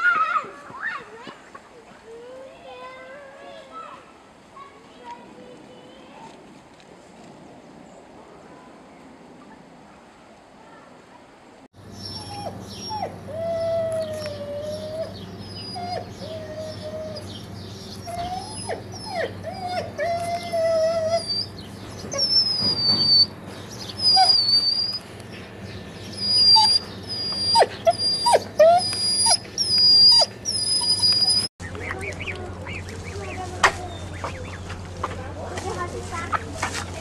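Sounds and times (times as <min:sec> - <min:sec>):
dog whining: 0:12.0 - 0:25.1, 0:26.1 - 0:31.5.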